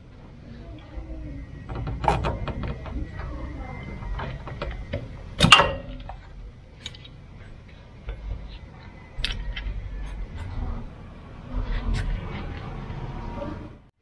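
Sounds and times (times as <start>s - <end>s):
sharp metallic clank: 5.4s - 6.2s.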